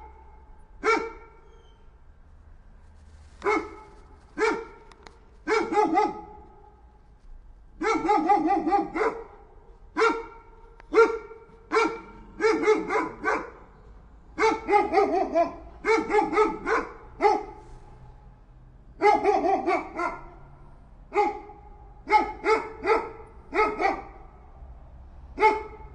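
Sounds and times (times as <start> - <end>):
dog barking: 0.0 - 1.5, 3.4 - 6.8, 7.8 - 13.7, 14.4 - 17.6, 19.0 - 20.5, 21.1 - 24.4, 25.4 - 25.9.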